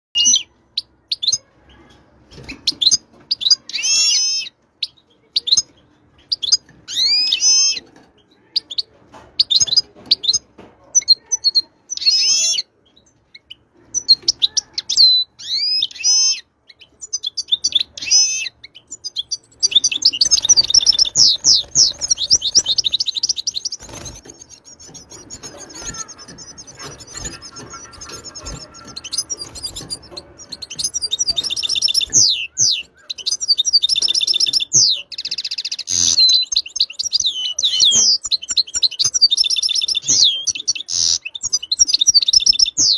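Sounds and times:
goldfinch singing: 0:13.3 - 0:42.9.

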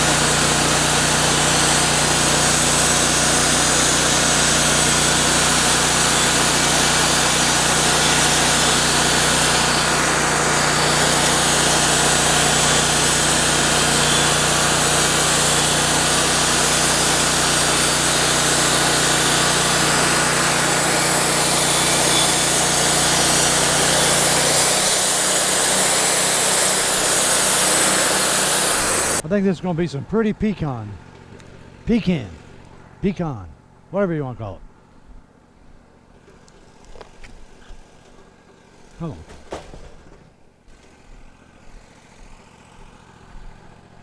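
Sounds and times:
band blade sawing log: 0:00.0 - 0:29.6, 0:36.3 - 0:40.1
sawmill engine droning: 0:00.0 - 0:44.0.

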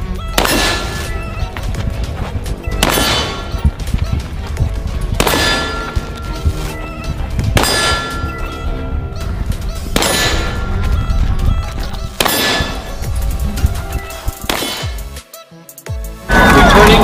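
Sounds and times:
continuous low rumble: 0:00.0 - 0:13.9
loud metallic clangs ringing: 0:00.4 - 0:01.2, 0:02.8 - 0:03.6, 0:05.2 - 0:06.4, 0:07.5 - 0:08.6, 0:10.0 - 0:10.9, 0:12.2 - 0:13.0.

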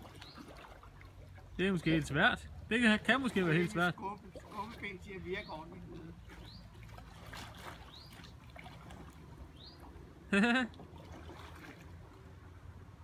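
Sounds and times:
kayak paddle dipping into water: 0:00.0 - 0:12.5.

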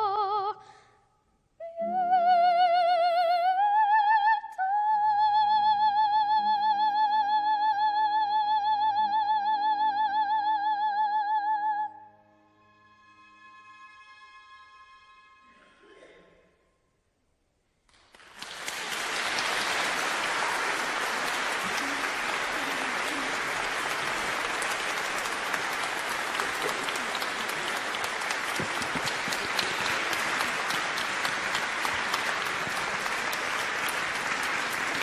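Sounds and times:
audience applauding: 0:17.9 - 0:35.0.

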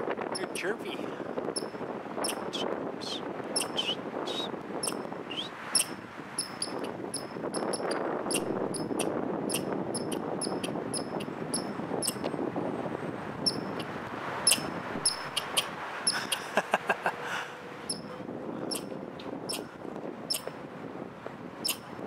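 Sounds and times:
squirrel chirping: 0:00.4 - 0:00.6, 0:01.6 - 0:12.2, 0:13.4 - 0:13.9, 0:14.5 - 0:16.4, 0:18.7 - 0:18.9, 0:19.5 - 0:19.7, 0:20.3 - 0:20.5, 0:21.6 - 0:21.8
squirrel squeaks falling: 0:03.6 - 0:04.0.

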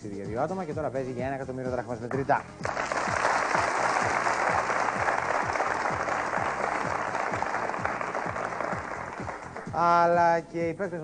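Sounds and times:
show music with drum beat: 0:00.0 - 0:10.2
audience applauding: 0:02.6 - 0:09.8.

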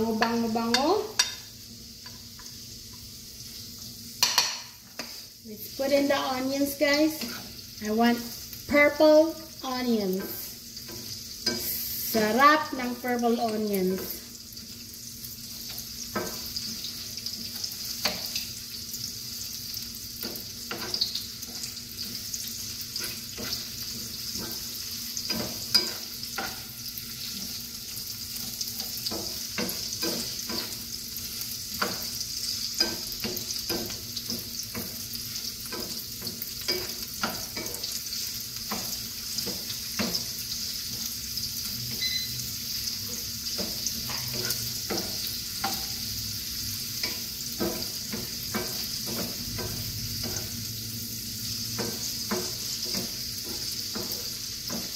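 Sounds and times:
onions sizzling in oil: 0:00.0 - 0:54.9
spatula scraping and tapping pan: 0:00.1 - 0:03.1, 0:04.2 - 0:05.3, 0:07.1 - 0:07.6, 0:10.1 - 0:11.8, 0:15.6 - 0:18.5, 0:19.5 - 0:41.1, 0:43.0 - 0:46.0, 0:46.9 - 0:50.6, 0:51.7 - 0:54.9.

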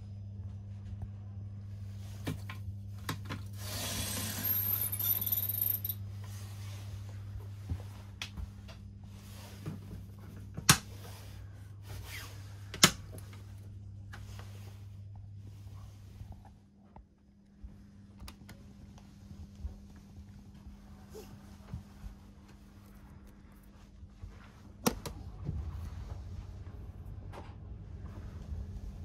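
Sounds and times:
steady low hum: 0:00.0 - 0:29.0
window blind pulled down: 0:03.6 - 0:04.9.

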